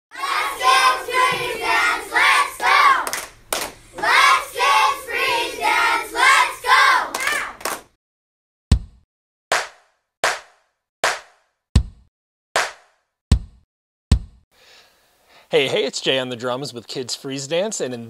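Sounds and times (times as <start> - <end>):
children chanting: 0.1 - 3.3, 3.9 - 7.7
sharp claps: 2.6 - 3.8, 7.1 - 8.0, 9.5 - 11.5, 12.6 - 13.0.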